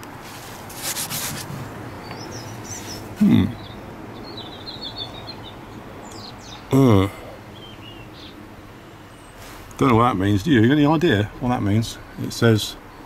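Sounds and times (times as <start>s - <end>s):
small birds chirping: 1.0s - 13.0s
low grunt: 3.2s - 3.6s, 6.7s - 7.4s.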